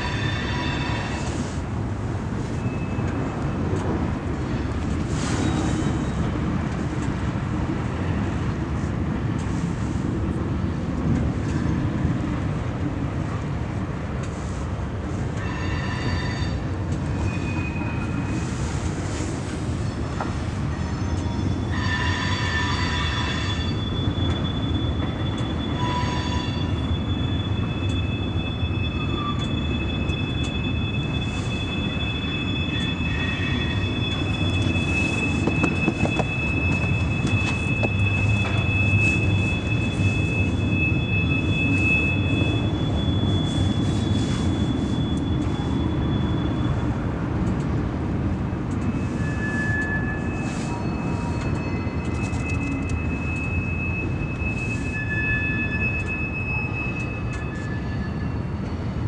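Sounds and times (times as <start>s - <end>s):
metallic wheel squeals: 0.0s - 1.4s, 15.4s - 18.8s, 19.8s - 47.1s, 48.8s - 59.0s
train wheels rumbling on rail: 0.0s - 59.0s.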